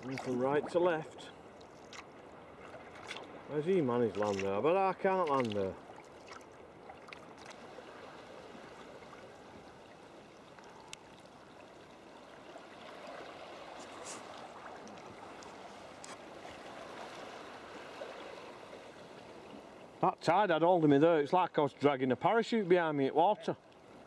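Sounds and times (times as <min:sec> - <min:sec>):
water rushing around kayak: 0:00.0 - 0:24.0
faint clicks: 0:10.6 - 0:11.2.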